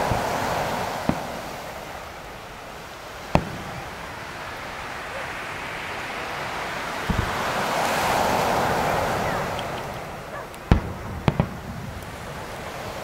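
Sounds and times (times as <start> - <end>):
firework shells bursting: 0.0 - 6.2, 7.0 - 13.0
surf washing on beach: 0.0 - 13.0.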